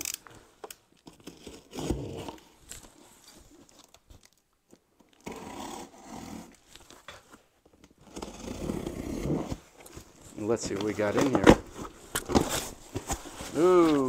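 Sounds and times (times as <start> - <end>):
cardboard box scraping and rustling: 8.0 - 14.0.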